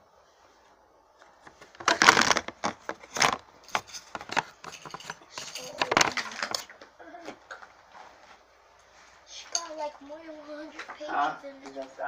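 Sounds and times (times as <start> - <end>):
objects clicking and rustling: 1.2 - 7.8.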